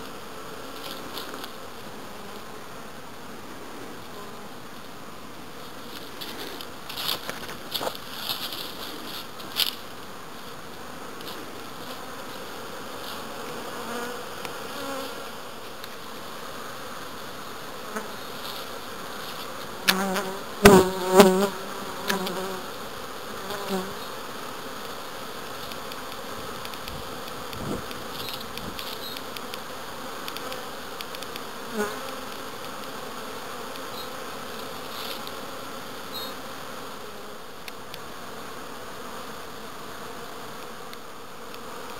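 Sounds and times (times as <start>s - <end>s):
honeybees buzzing: 0.0s - 41.9s
bee flying close past: 10.9s - 41.9s.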